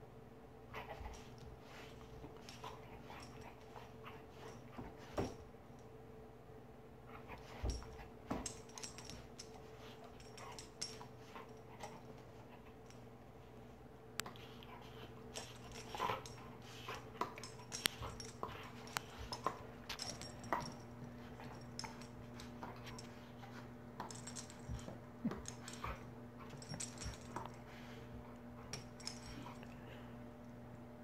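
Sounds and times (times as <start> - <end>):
collar tags jingling: 15.4 - 23.3, 24.0 - 27.6.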